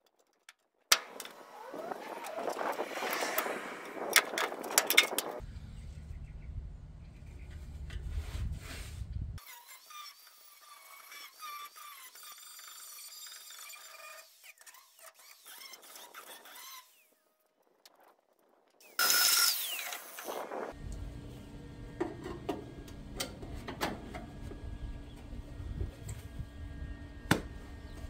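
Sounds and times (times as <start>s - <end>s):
low rumble: 2.5s - 9.4s
angle grinder whining on steel: 19.0s - 21.9s.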